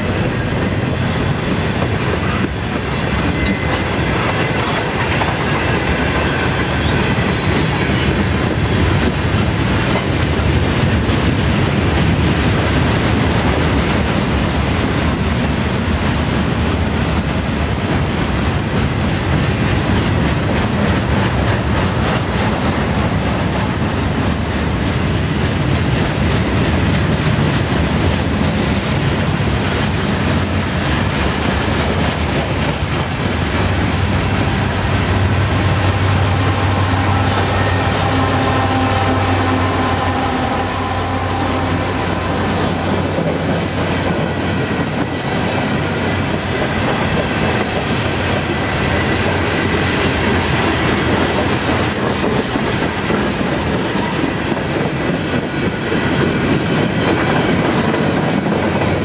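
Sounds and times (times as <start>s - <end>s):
freight train wheels rumbling and clacking: 0.0s - 59.0s.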